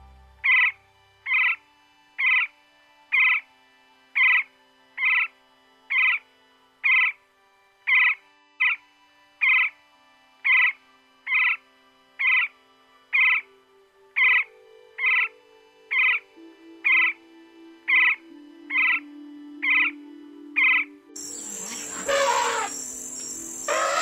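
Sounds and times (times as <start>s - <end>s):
woodpecker calling: 0.0s - 1.6s, 2.2s - 2.5s, 3.1s - 3.4s, 4.2s - 5.3s, 5.9s - 6.2s, 6.8s - 7.2s, 7.9s - 8.8s, 9.4s - 9.7s, 10.4s - 11.6s, 12.2s - 12.5s, 13.1s - 13.4s, 14.2s - 16.2s, 16.8s - 17.2s, 17.9s - 20.0s, 20.6s - 24.0s
soft background music: 0.0s - 24.0s.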